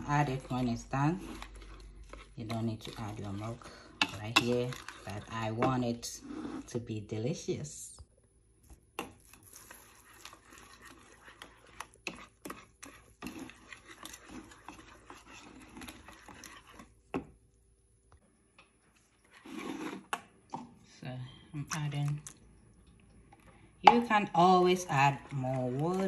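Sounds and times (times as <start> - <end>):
whisk stirring thick paste: 0.0 - 6.9, 9.0 - 17.4, 18.8 - 20.2, 23.8 - 26.0.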